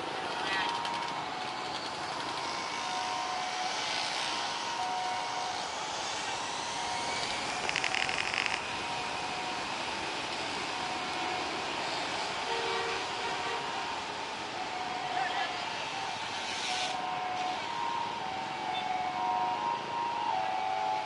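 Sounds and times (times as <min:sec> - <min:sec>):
motorcycles passing: 0:00.0 - 0:14.4
road traffic passing: 0:00.0 - 0:21.0.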